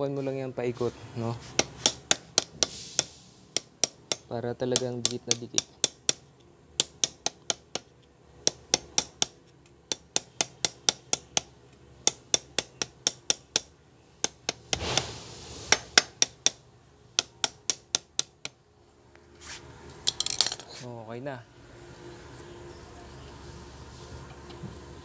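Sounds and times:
small hammer tapping: 0:01.6 - 0:14.8, 0:17.2 - 0:18.6.

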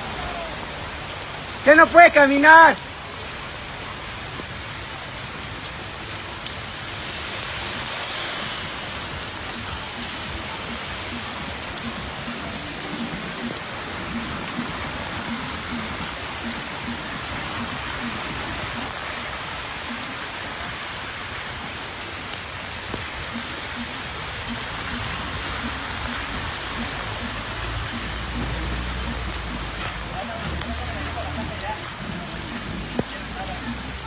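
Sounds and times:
rain hiss: 0:00.0 - 0:34.0
wet road noise from moving car: 0:00.0 - 0:34.0.

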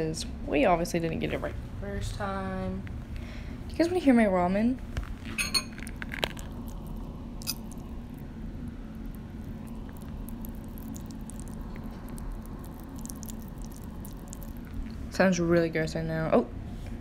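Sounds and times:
person chewing noodles: 0:05.8 - 0:15.0.

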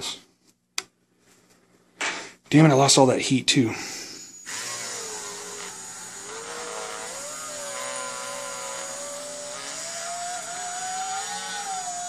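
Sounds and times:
rotary tool motor whine: 0:04.3 - 0:12.0.

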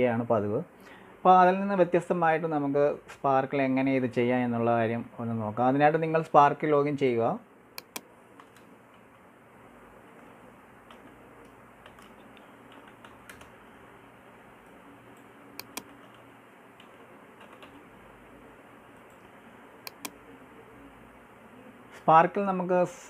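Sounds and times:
mouse clicks: 0:07.8 - 0:08.7, 0:15.2 - 0:16.2, 0:19.0 - 0:20.2
keyboard typing: 0:07.8 - 0:09.2, 0:10.1 - 0:13.6, 0:15.1 - 0:17.9, 0:18.9 - 0:20.2.

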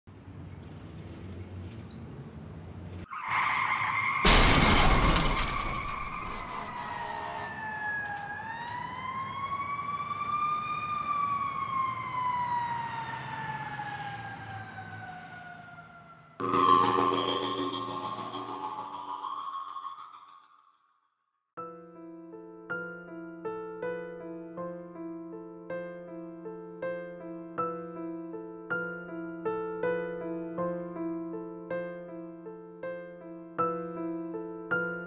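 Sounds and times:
loud car crash: 0:03.7 - 0:07.6
siren wailing: 0:05.4 - 0:20.5
held high tone: 0:16.4 - 0:20.6.

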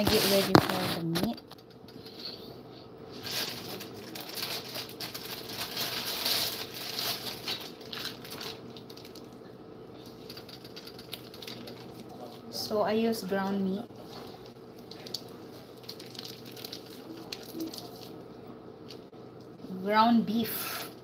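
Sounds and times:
faint steady hum: 0:00.0 - 0:21.0
plastic bag crinkling: 0:03.2 - 0:09.4, 0:10.0 - 0:12.5, 0:14.0 - 0:18.2.

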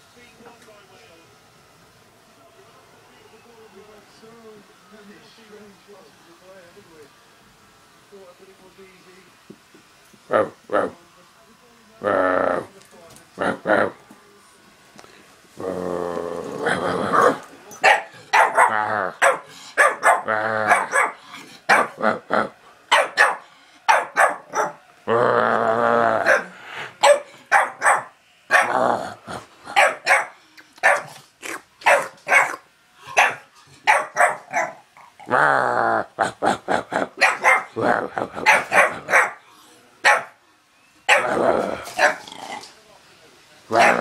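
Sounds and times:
puppy growling: 0:12.0 - 0:12.7, 0:13.4 - 0:14.0, 0:15.6 - 0:27.9, 0:28.5 - 0:39.4, 0:41.1 - 0:42.8, 0:43.7 - 0:44.0
puppy barking: 0:17.1 - 0:22.0, 0:22.9 - 0:24.8, 0:26.2 - 0:28.8, 0:29.7 - 0:31.2, 0:31.8 - 0:34.8, 0:37.2 - 0:37.8, 0:38.4 - 0:39.4, 0:40.0 - 0:40.4, 0:41.1 - 0:41.4, 0:42.0 - 0:42.3, 0:43.7 - 0:44.0.

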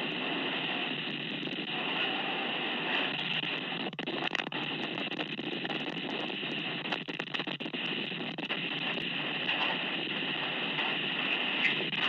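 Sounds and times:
storm wind rushing on microphone: 0:00.0 - 0:12.0
small crackling clicks: 0:02.9 - 0:12.0.

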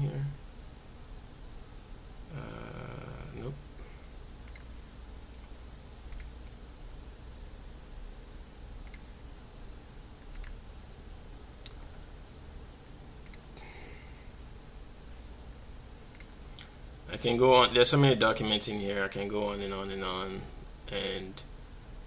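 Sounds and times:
low steady hum: 0:00.0 - 0:22.0
computer mouse clicks: 0:04.4 - 0:04.7, 0:05.4 - 0:06.6, 0:08.8 - 0:09.1, 0:10.2 - 0:10.6, 0:13.2 - 0:13.5, 0:16.1 - 0:16.7.

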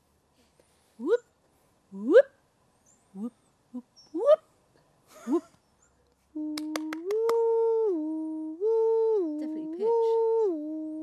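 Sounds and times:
person humming: 0:03.2 - 0:04.4, 0:06.3 - 0:11.0.

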